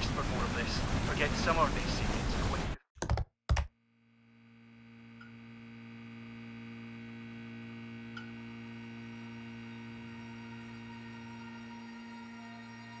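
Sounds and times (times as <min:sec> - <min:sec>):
low hum of held pitches: 0:04.2 - 0:13.0.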